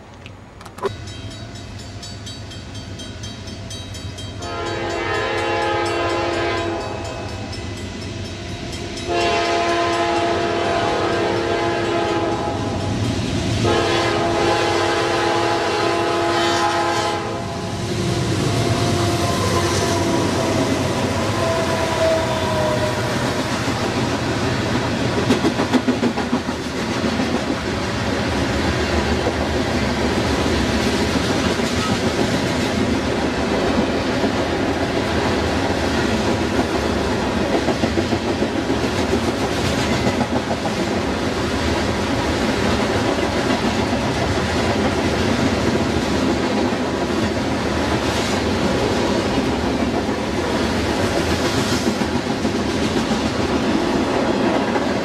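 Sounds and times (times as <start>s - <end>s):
train wheels rumbling: 0.6s - 55.0s
locomotive air horn blasts: 4.4s - 7.3s, 9.1s - 12.8s, 13.6s - 17.7s, 18.6s - 23.0s.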